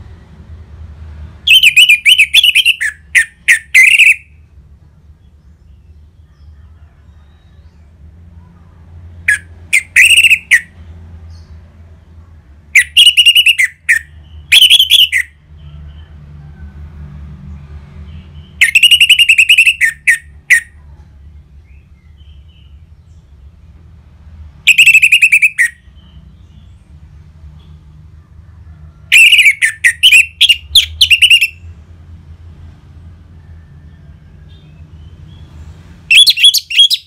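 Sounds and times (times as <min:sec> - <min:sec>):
bird singing trilled song: 0:01.4 - 0:04.5, 0:09.2 - 0:11.6, 0:12.7 - 0:16.1, 0:18.1 - 0:23.5, 0:24.7 - 0:27.0, 0:29.1 - 0:31.8, 0:33.8 - 0:37.0.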